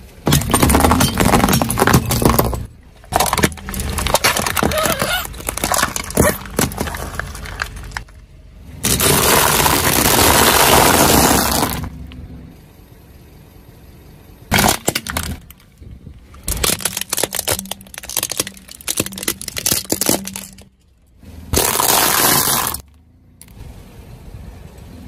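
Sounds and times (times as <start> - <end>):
tyre crunching things on asphalt: 0.2 - 8.2, 8.8 - 12.1, 21.5 - 22.9
plastic cracking and snapping: 16.4 - 20.7.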